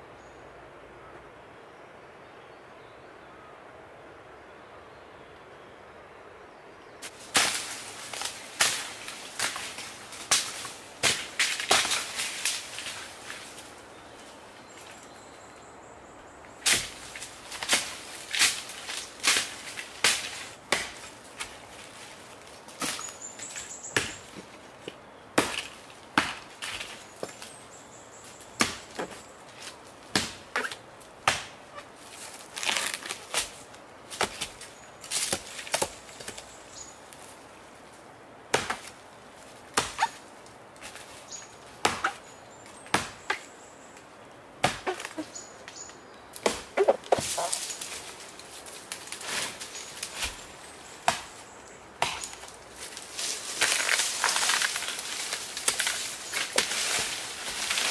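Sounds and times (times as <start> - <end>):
machete chopping palm trunk: 19.2 - 21.0, 25.4 - 26.9, 28.6 - 29.2, 30.1 - 31.6, 38.5 - 38.9, 39.7 - 40.2, 41.8 - 42.2, 42.9 - 43.4, 44.6 - 45.2, 46.4 - 47.3, 51.0 - 51.3, 52.0 - 52.4.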